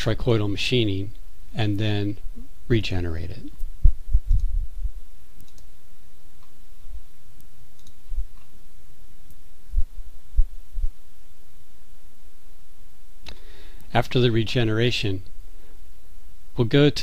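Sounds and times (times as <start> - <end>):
background hum: 0.0 - 17.0
short low thumps: 3.6 - 5.0, 9.7 - 11.0
computer mouse clicks: 4.2 - 4.6, 5.4 - 5.7, 7.4 - 8.5.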